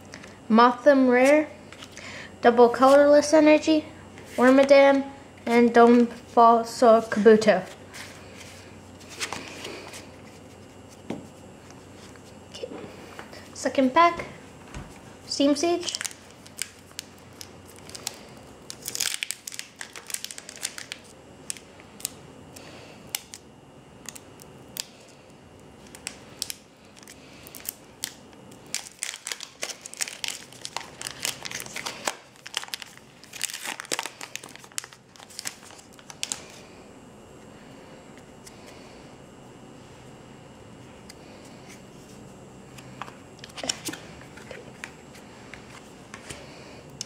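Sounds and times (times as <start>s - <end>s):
foil wrapper crinkling and tearing: 15.8s - 23.4s, 24.0s - 25.2s, 25.8s - 36.6s.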